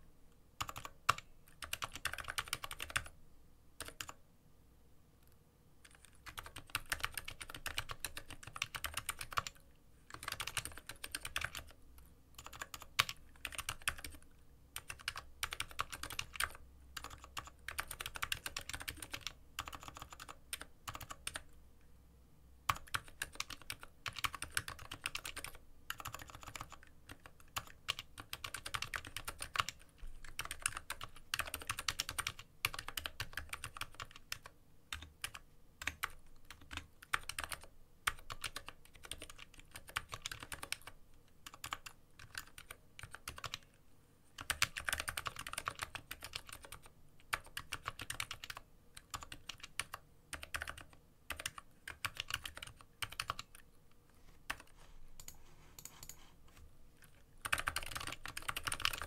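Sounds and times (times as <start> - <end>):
mechanical keyboard typing: 0.6 - 3.2, 3.8 - 4.2, 5.8 - 11.8, 12.4 - 21.5, 22.7 - 43.8, 44.4 - 53.6, 54.5 - 56.2, 57.0 - 59.0.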